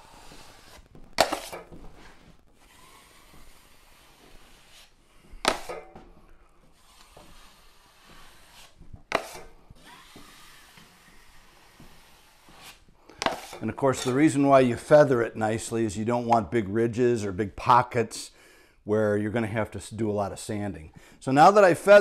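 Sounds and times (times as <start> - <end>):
taping knife scraping: 0.0 - 5.9, 6.7 - 14.2
knife swishing over wall: 0.0 - 14.3.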